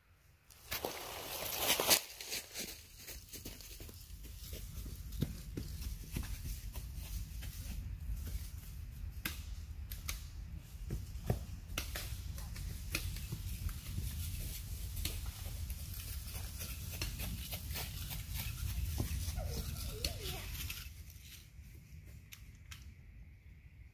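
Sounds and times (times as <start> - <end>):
dry leaves crackling underfoot: 0.5 - 5.0, 12.1 - 21.7.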